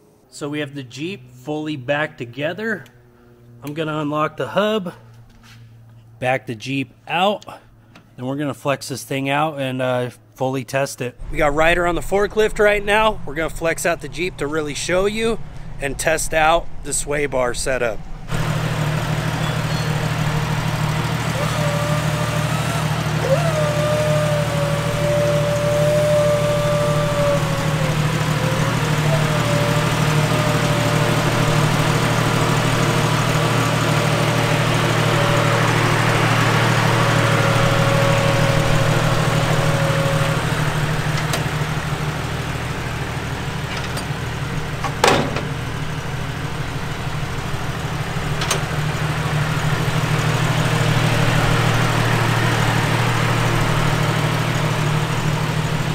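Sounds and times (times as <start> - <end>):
forklift engine idling: 11.2 - 55.9
hydraulic whine: 11.2 - 55.9
sharp knock: 45.0 - 45.7.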